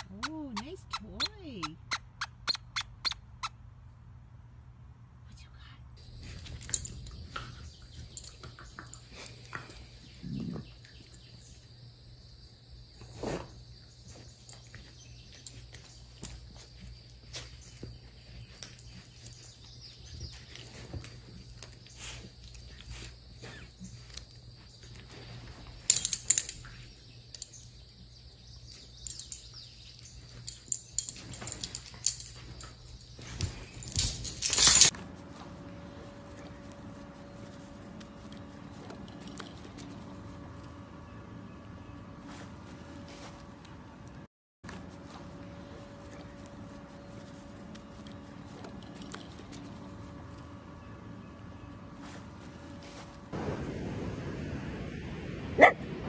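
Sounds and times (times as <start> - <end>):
metal tags jingling: 6.2 - 9.2, 25.5 - 35.0
dogs snorting and grunting: 8.5 - 11.1
dogs scuffling and rustling: 13.1 - 27.0, 28.7 - 43.9, 44.6 - 53.4.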